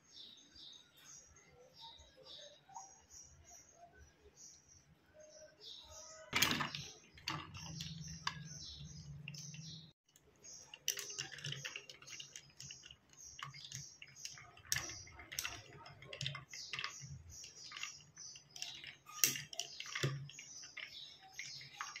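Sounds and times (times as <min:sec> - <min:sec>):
painting tools tapping and scratching: 0:06.3 - 0:22.0.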